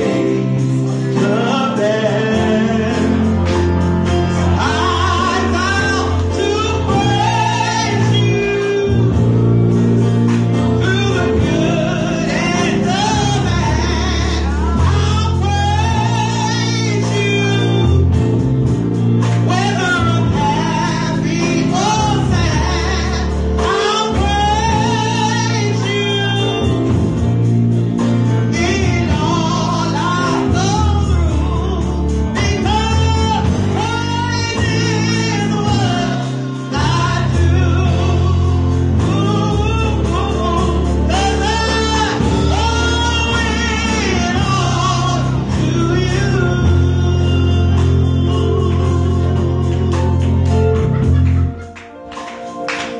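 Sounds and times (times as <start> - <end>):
instrumental accompaniment: 0.0 - 52.9
woman singing gospel song: 4.6 - 9.3, 10.8 - 18.0, 19.5 - 26.7, 28.5 - 50.4.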